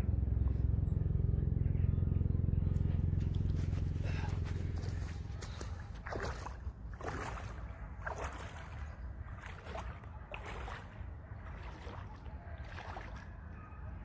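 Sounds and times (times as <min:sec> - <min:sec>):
steady low rumble: 0:00.0 - 0:14.0
boots sloshing through water: 0:03.2 - 0:13.6.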